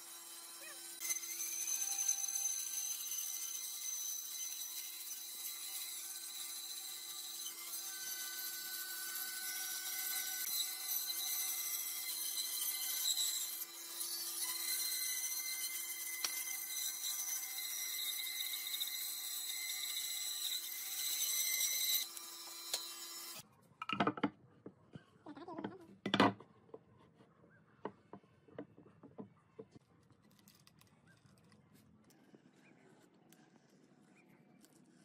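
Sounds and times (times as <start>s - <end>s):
band saw cutting wood: 0.0s - 23.4s
wooden blocks knocking on bench: 23.8s - 24.4s.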